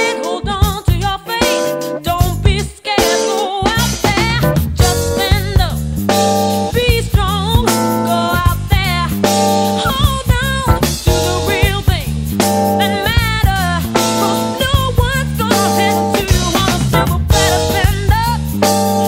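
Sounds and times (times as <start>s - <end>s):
person singing: 0.0s - 5.8s, 6.7s - 19.0s
drums steady beat: 0.0s - 19.0s
guitar: 0.0s - 19.0s.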